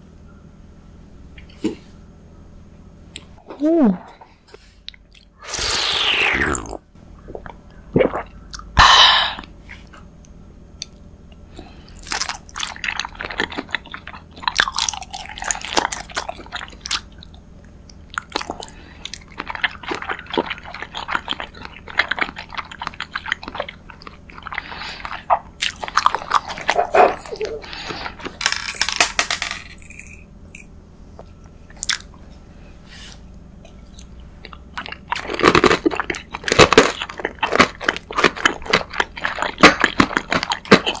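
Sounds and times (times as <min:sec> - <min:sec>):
slurp from a cup: 0:05.4 - 0:06.8
wet crackly chewing: 0:11.9 - 0:28.4, 0:33.6 - 0:41.0.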